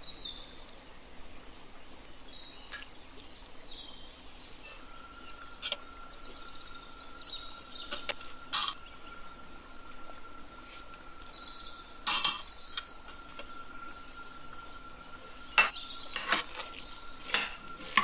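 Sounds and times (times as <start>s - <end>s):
metal spoon scraping metal pot: 15.6s - 16.7s.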